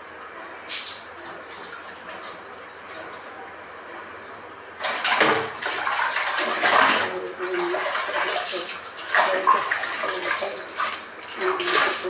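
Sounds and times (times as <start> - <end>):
water running and splashing: 4.8 - 12.0.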